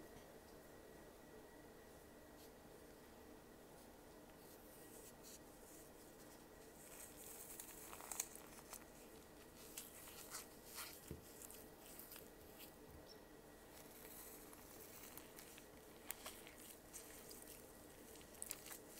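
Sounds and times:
foam crunching and crackling: 0:06.6 - 0:12.8, 0:13.7 - 0:18.9.

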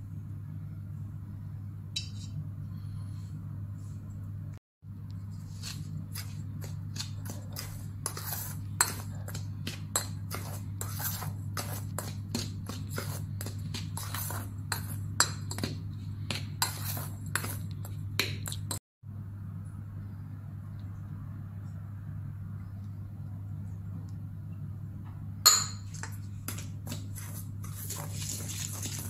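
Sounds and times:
steady low hum: 0:00.0 - 0:29.0
metal spoon scraping a steel bowl: 0:05.4 - 0:18.0.

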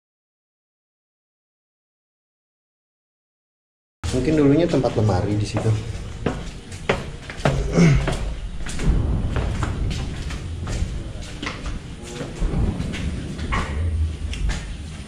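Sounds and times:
footsteps: 0:04.0 - 0:15.0
low rumble: 0:04.0 - 0:15.0.

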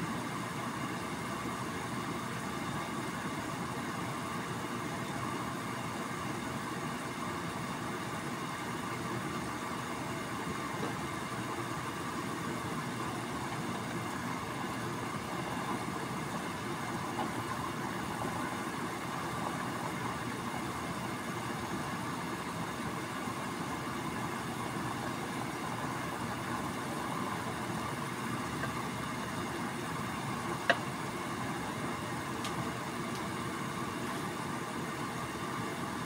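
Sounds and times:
water boiling in a skillet: 0:00.1 - 0:36.0.

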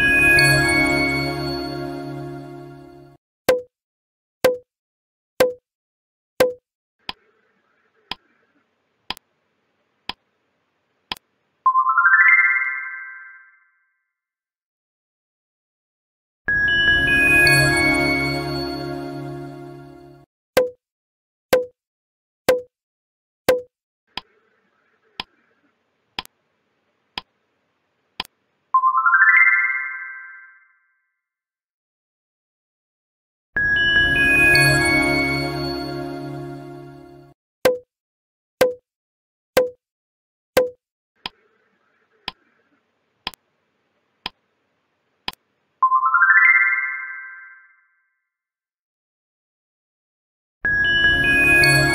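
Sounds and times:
rising chime: 0:00.0 - 0:03.1, 0:16.5 - 0:20.2, 0:33.6 - 0:37.3, 0:50.7 - 0:51.9
countdown timer ticking: 0:05.4 - 0:05.6, 0:06.4 - 0:06.6, 0:22.5 - 0:22.7.

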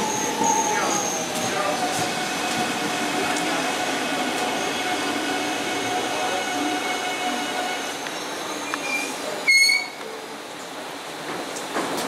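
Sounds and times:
electric train pulling out: 0:00.0 - 0:09.3.

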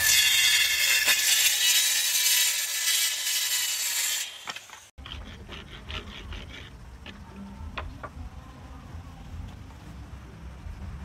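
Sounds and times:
circular saw cutting wood: 0:00.0 - 0:06.7.

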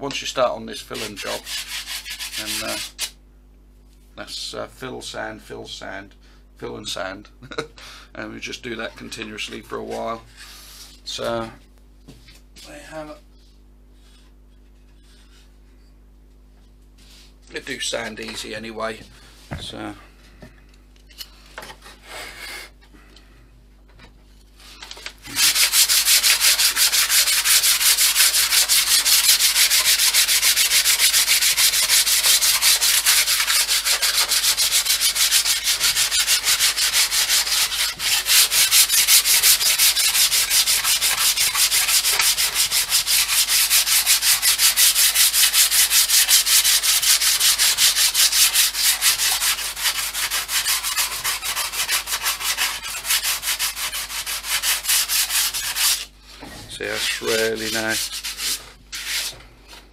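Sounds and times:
sandpaper sanding wood: 0:00.9 - 0:03.2, 0:25.3 - 0:56.1, 0:56.8 - 0:59.4.

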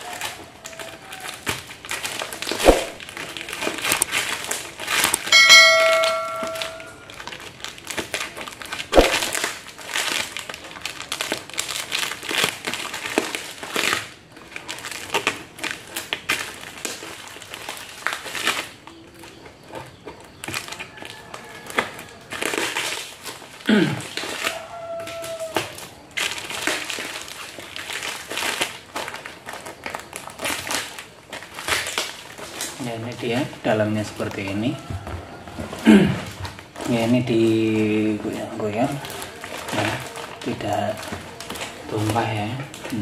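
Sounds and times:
plastic wrapping crinkling: 0:00.0 - 0:43.0
bell-like chime: 0:05.3 - 0:07.0.

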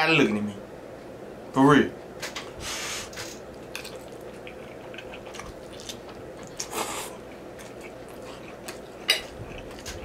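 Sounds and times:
mouth chewing food: 0:03.5 - 0:10.0.

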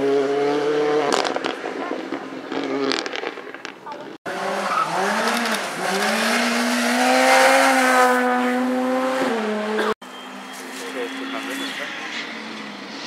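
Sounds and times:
car engine accelerating hard: 0:04.3 - 0:10.0.

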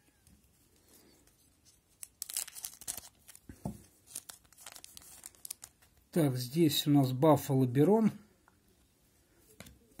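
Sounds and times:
foil wrapper crinkling and tearing: 0:01.7 - 0:06.1.

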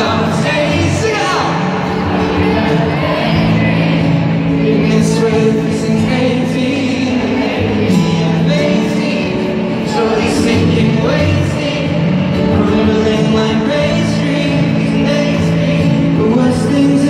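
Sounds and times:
man singing pop ballad: 0:00.0 - 0:03.1, 0:04.1 - 0:17.0
acoustic guitar: 0:00.0 - 0:17.0.

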